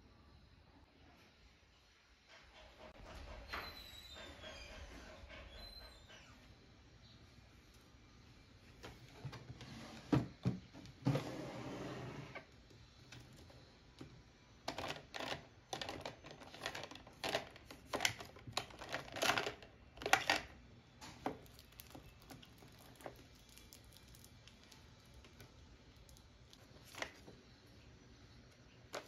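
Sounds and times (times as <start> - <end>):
stationery rattling in plastic trays: 14.7 - 20.6.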